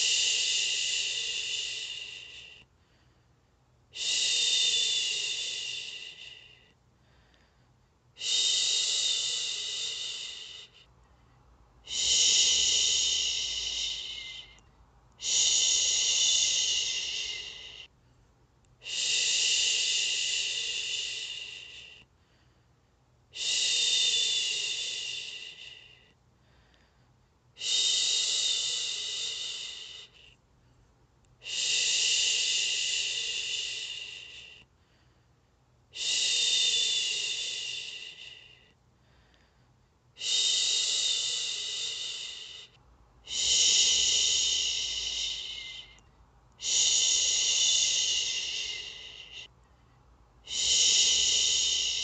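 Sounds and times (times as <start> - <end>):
woman shushing: 11.9 - 14.6, 15.2 - 17.8, 43.3 - 46.0, 46.6 - 49.5, 50.5 - 52.0.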